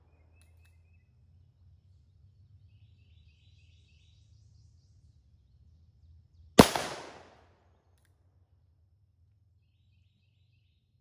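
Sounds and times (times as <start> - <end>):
revolver gunshot with echo: 6.6 - 7.4.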